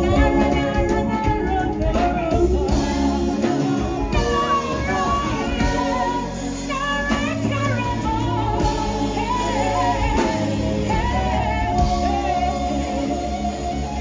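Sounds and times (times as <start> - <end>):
bass guitar line: 0.0 - 14.0
drums: 0.0 - 14.0
woman singing into a microphone: 0.0 - 14.0.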